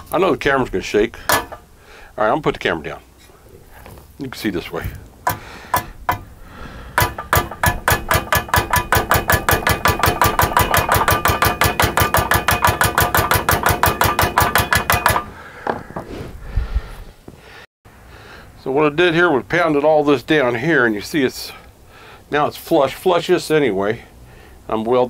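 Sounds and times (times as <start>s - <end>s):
hammer striking metal pipe: 1.3s - 1.6s, 5.3s - 6.3s, 7.0s - 15.3s.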